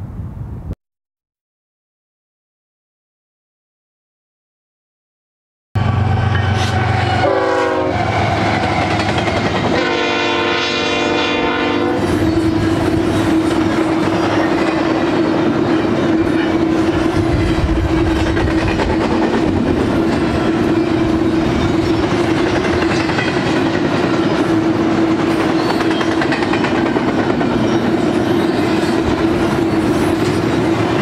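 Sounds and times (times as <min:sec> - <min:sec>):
locomotive air horn: 0:05.8 - 0:13.2
train cars rumbling and clacking: 0:05.8 - 0:31.0.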